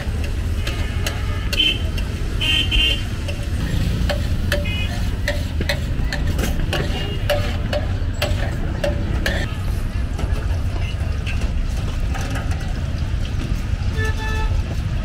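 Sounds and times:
street traffic rumble: 0:00.0 - 0:15.0
metal spatula scraping on griddle: 0:03.2 - 0:09.5.

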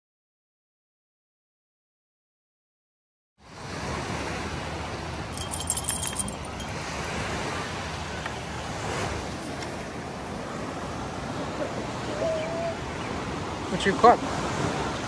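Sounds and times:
ocean surf: 0:03.4 - 0:15.0
wind: 0:03.4 - 0:15.0
high metallic jingling: 0:05.3 - 0:07.0.

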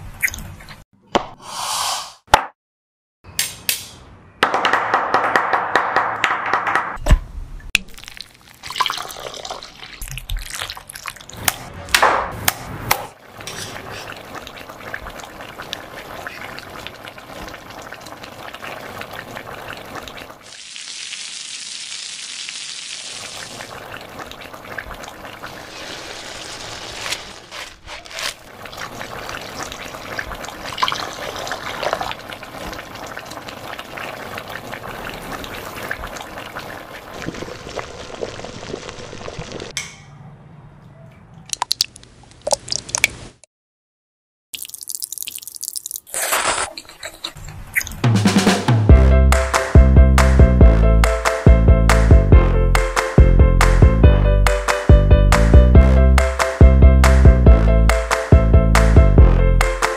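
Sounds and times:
brief high hiss: 0:01.4 - 0:02.2
water bubbling: 0:23.2 - 0:27.1, 0:28.4 - 0:39.7.

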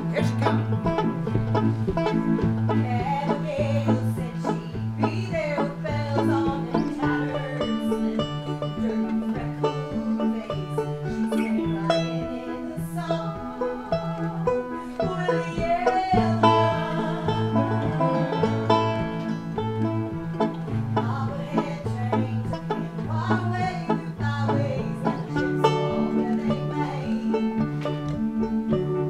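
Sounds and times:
bouncing bass line: 0:00.0 - 0:29.0
piano accompaniment: 0:00.0 - 0:29.0
woman singing: 0:02.7 - 0:18.4, 0:21.0 - 0:27.7.

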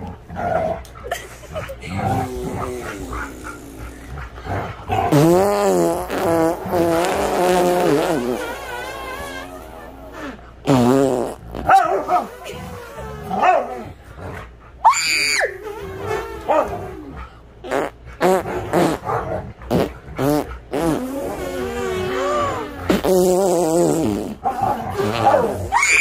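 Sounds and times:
husky calling and barking: 0:11.6 - 0:17.4, 0:18.0 - 0:20.7.

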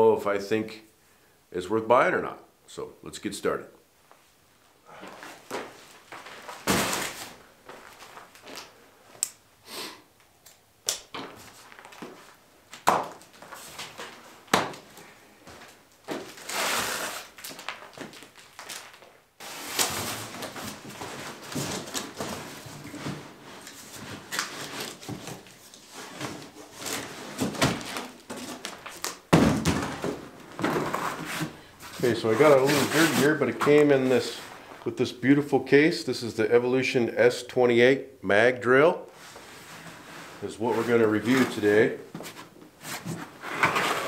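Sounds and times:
cardboard rustling and sliding: 0:19.4 - 0:29.1, 0:29.7 - 0:34.8, 0:39.2 - 0:44.0.

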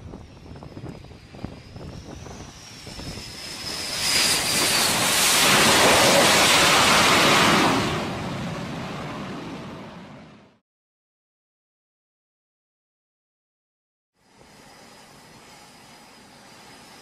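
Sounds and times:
jet turbine whine: 0:00.0 - 0:10.6, 0:14.2 - 0:17.0
loud jet roar: 0:00.0 - 0:10.6.

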